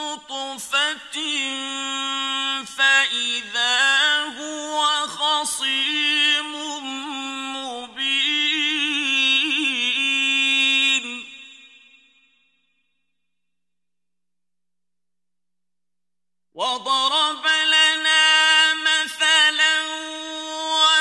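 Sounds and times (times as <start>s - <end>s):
man chanting melodic recitation: 16.6s - 21.0s.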